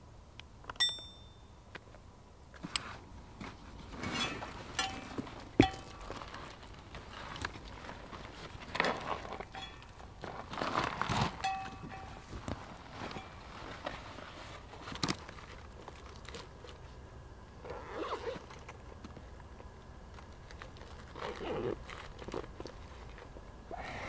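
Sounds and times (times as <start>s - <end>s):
small metallic clinks: 0.7s - 1.5s, 4.2s - 6.1s, 9.4s - 10.0s, 11.4s - 12.3s
backpack fabric rustling: 17.7s - 18.5s.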